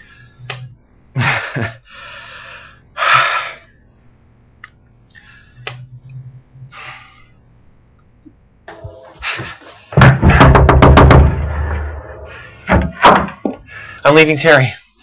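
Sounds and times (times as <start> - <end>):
faint clicks: 4.6 - 6.2.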